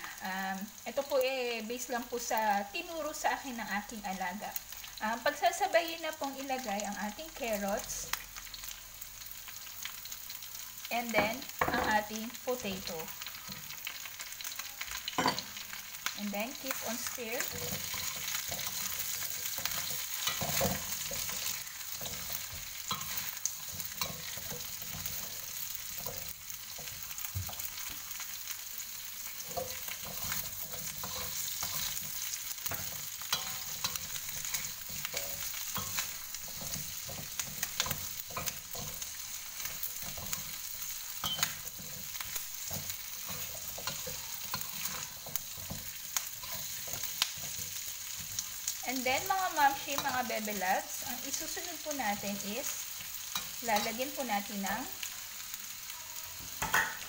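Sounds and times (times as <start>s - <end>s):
food sizzling in hot oil: 0.0s - 57.0s
metal spatula scraping a wok: 17.4s - 27.8s, 29.3s - 48.6s.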